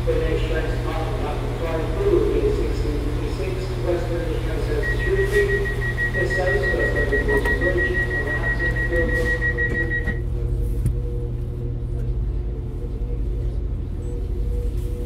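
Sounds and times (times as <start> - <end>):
rapid electronic beeping: 4.8 - 10.2.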